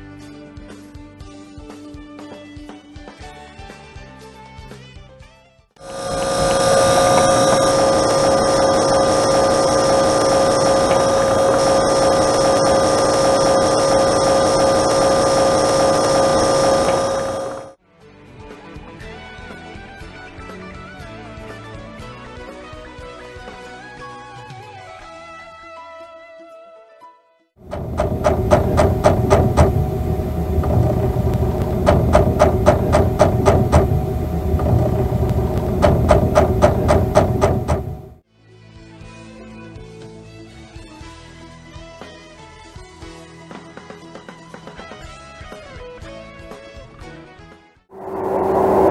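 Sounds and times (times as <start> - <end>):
refrigerator compressor whirring: 5.8 - 17.7, 27.6 - 38.2.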